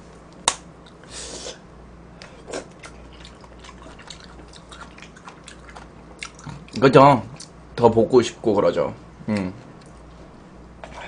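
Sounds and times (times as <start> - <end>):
person chewing food: 2.2 - 6.8.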